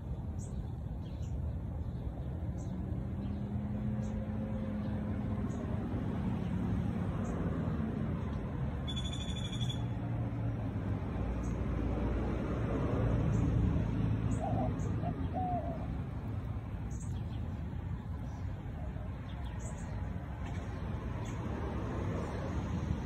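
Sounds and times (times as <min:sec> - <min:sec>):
high-pitched bird call: 0:08.9 - 0:09.9.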